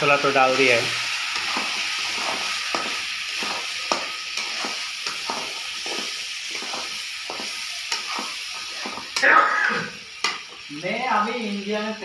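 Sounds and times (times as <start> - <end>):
food sizzling in a pan: 0.0 - 12.0
spatula scraping a pan: 1.3 - 9.3.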